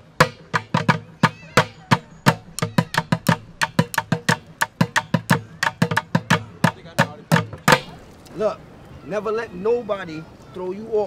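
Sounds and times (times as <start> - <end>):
drumsticks beating plastic buckets: 0.2 - 8.0.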